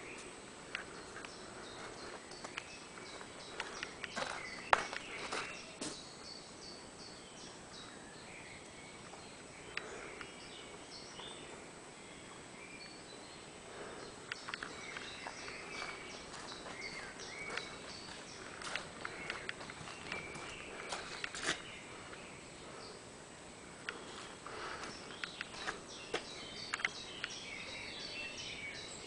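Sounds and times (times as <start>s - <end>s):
birds chirping: 0.0s - 29.0s
footsteps: 0.2s - 6.0s, 14.6s - 21.7s, 24.1s - 26.3s
sharp clicks: 14.3s - 15.1s, 25.1s - 25.7s, 26.6s - 27.4s.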